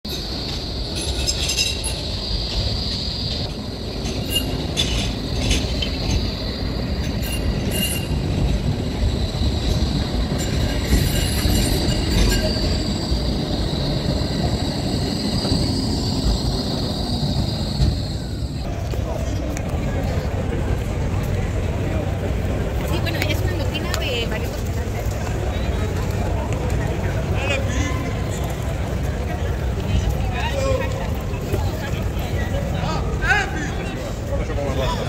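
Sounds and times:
tram running rumble: 0.0 - 35.0
tram wheels squealing on rails: 0.1 - 35.0.

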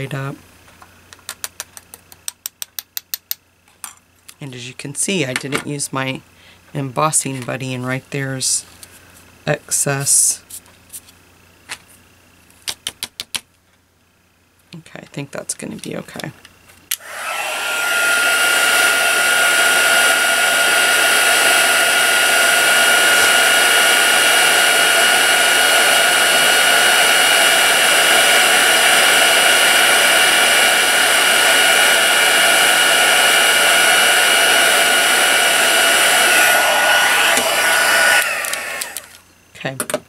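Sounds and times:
heat tool blowing with fan whine: 16.9 - 39.3.

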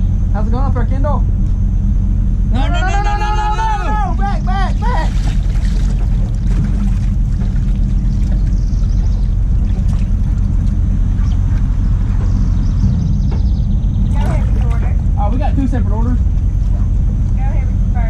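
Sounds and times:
truck engine idling: 0.0 - 18.0.

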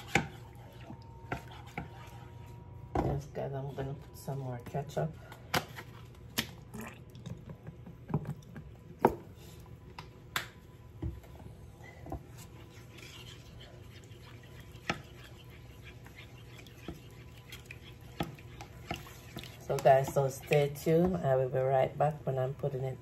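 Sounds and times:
wooden spoon stirring in pan: 0.0 - 5.8, 11.2 - 22.4.

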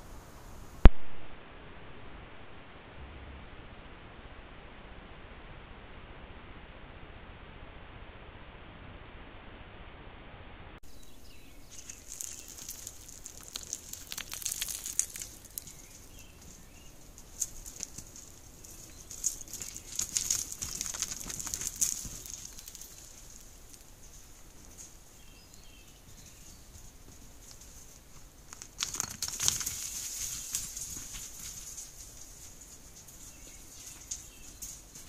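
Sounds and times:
animals rustling over leaves: 10.9 - 35.0.

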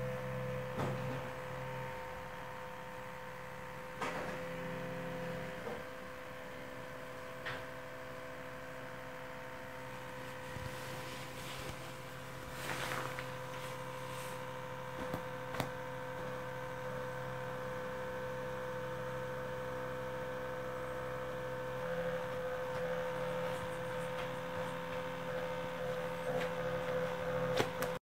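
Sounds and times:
vibrating device buzzing: 20.6 - 28.0.

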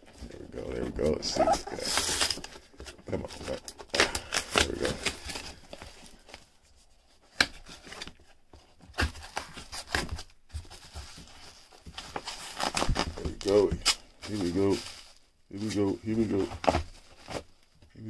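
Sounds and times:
cardboard box tearing: 0.9 - 6.1, 12.0 - 15.0.

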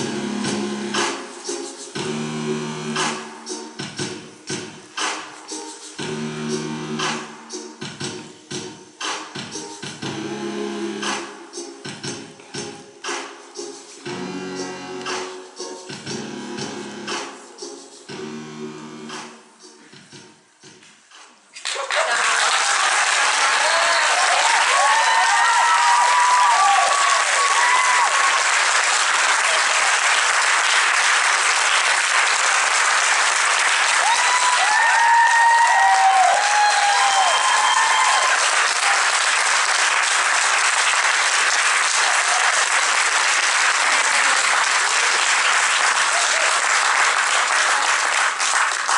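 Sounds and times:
audience applause: 21.6 - 48.9
whooping cheers: 21.8 - 28.6, 33.9 - 39.1, 41.9 - 42.8, 46.0 - 46.7.

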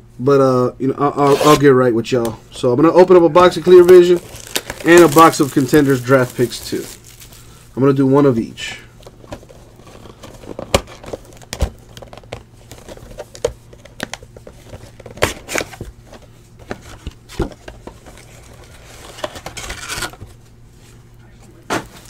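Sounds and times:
cardboard box tearing: 1.2 - 1.6, 3.8 - 7.1
foil packs crinkling: 3.4 - 15.8.

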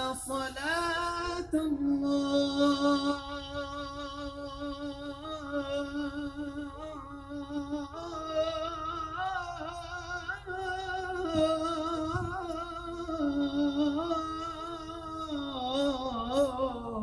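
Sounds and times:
man singing devotional chant: 0.0 - 17.0.

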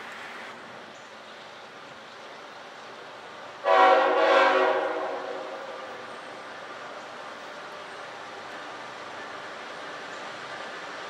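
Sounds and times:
train horn blast: 3.6 - 5.9.

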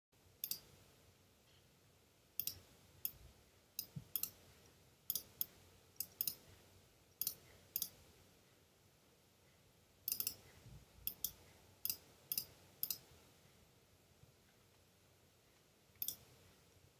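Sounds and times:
computer mouse clicking: 0.4 - 0.7, 2.4 - 3.2, 3.8 - 4.4, 5.1 - 6.4, 7.2 - 8.0, 10.1 - 10.4, 11.0 - 13.1, 16.0 - 16.3.

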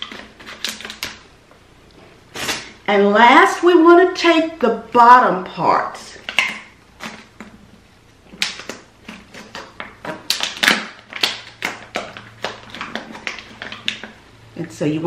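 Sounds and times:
tape wrapping: 0.0 - 1.3, 6.2 - 7.6, 8.3 - 14.2
plastic bottle crackling: 8.3 - 14.2.

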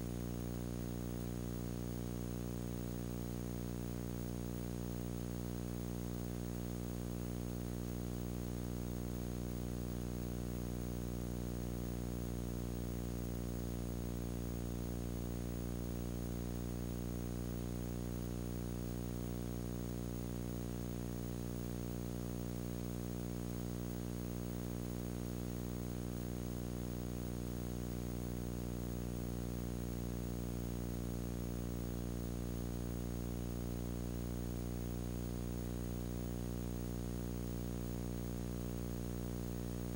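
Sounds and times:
electrical hum and buzz: 0.0 - 39.9.

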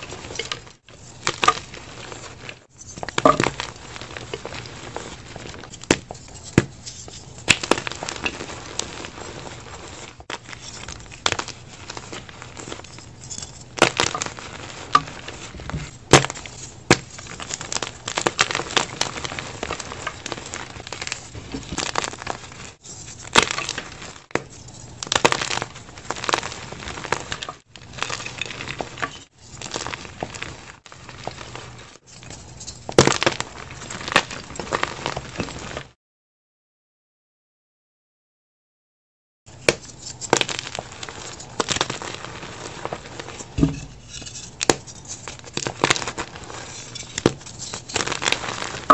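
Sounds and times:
chalk crunching by hand: 39.8 - 48.9.

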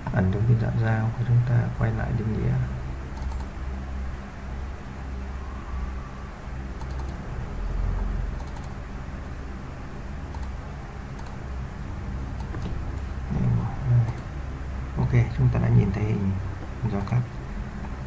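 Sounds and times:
steady low hum: 0.0 - 18.0
computer mouse clicking: 3.1 - 3.5, 6.8 - 7.2, 8.4 - 8.8, 10.3 - 10.6, 11.2 - 11.4, 12.4 - 12.8, 14.0 - 14.3, 16.6 - 17.2.

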